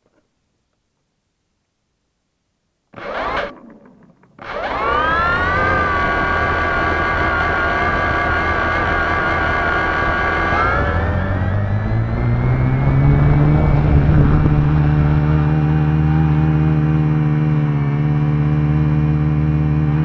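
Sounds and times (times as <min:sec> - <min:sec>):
drone propellers whining: 0:02.9 - 0:16.9.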